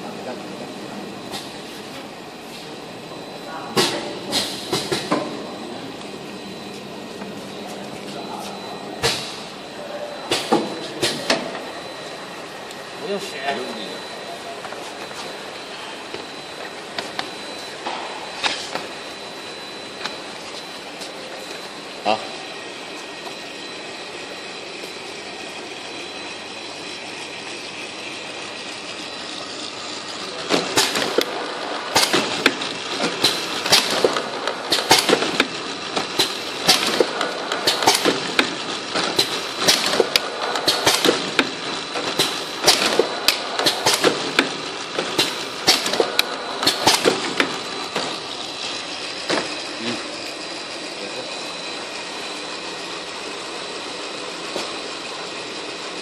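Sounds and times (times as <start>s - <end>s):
machine humming: 0.0s - 56.0s
sharp mechanical clacks and knocks: 31.9s - 48.1s.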